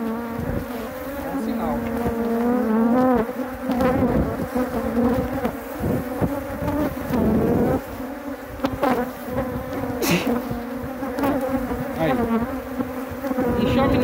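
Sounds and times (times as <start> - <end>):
bees buzzing: 0.0 - 14.0
wooden hive frame knocks: 1.3 - 7.5.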